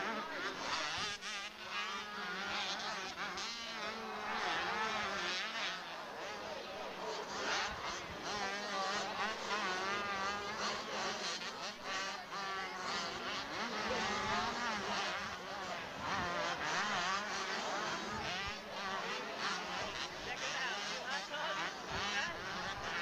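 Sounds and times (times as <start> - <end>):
motocross bikes racing: 0.0 - 23.0.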